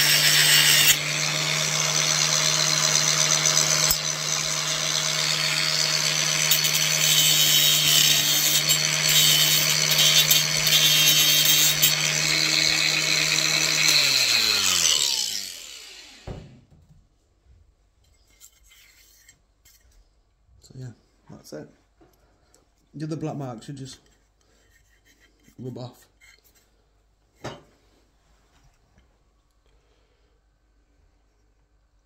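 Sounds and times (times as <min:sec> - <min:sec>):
angle grinder cutting tile: 0:00.0 - 0:16.5
grinder winding down: 0:00.0 - 0:16.5.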